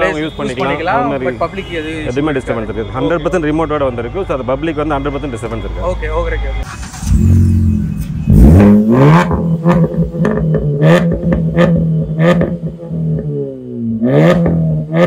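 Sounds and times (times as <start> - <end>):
car engine revving: 6.6 - 15.0.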